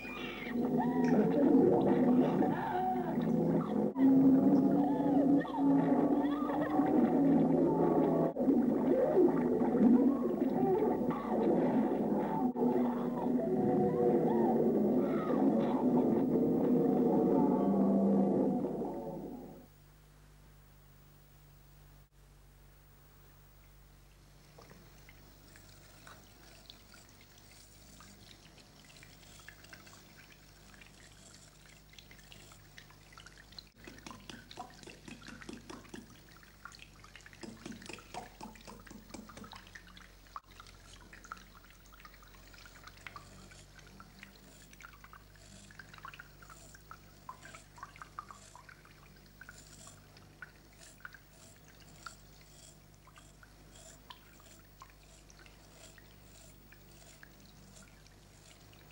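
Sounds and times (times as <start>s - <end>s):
faint steady hum: 0.0s - 58.9s
razor rinsed under water: 25.0s - 58.9s
tap water running into sink: 33.7s - 40.4s.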